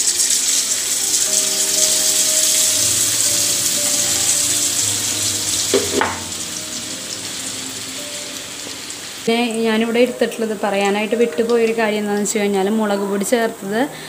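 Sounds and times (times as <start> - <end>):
batter dripping into hot oil: 0.0 - 7.6
oil sizzling and bubbling: 0.0 - 13.8.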